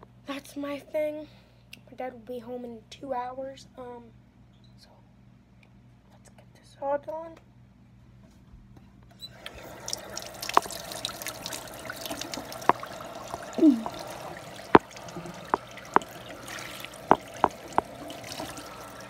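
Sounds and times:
faucet water splashing: 9.4 - 19.0
sharp knocks and taps: 10.5 - 10.8, 12.3 - 14.1, 14.7 - 16.1, 17.1 - 17.9.

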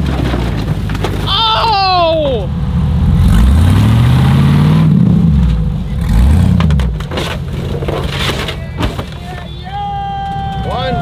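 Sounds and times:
car body crunching under tyres: 0.0 - 1.7, 5.4 - 9.6
buggy engine revving: 0.0 - 11.0.

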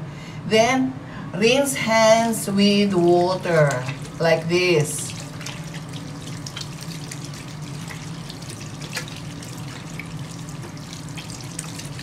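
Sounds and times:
tap water splashing into basin: 3.1 - 4.2, 5.0 - 12.0.

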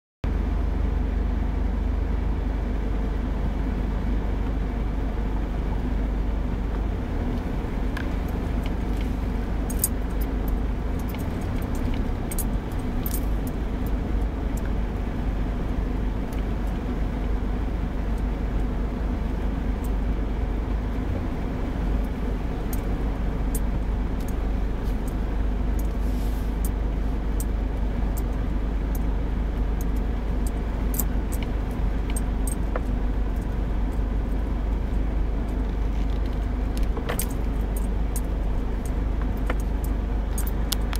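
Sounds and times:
vehicle engine rumble in cabin: 0.2 - 40.9
light clicks and rattles: 7.9 - 14.8, 29.8 - 40.9.

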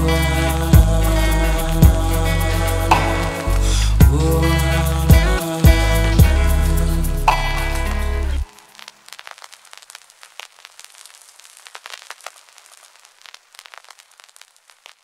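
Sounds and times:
faint crackling clicks: 8.6 - 15.0.

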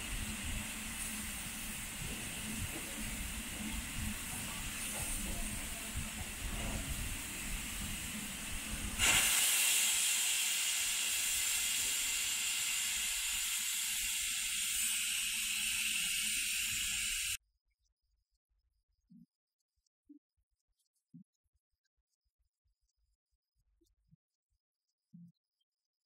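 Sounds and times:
steam venting with loud hiss: 0.0 - 17.4.

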